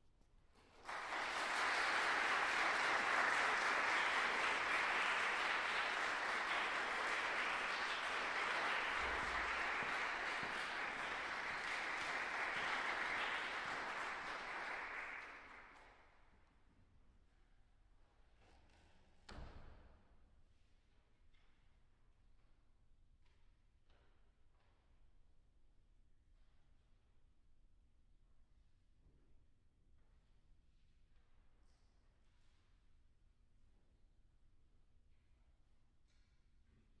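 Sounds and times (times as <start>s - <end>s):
audience applauding: 0.7s - 15.9s.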